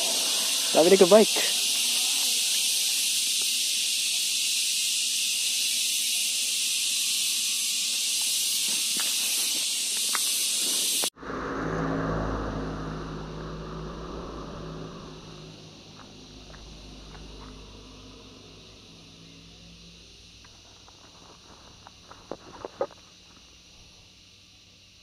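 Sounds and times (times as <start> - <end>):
insect chorus: 0.0 - 25.0
low hum and rumble: 11.1 - 22.4.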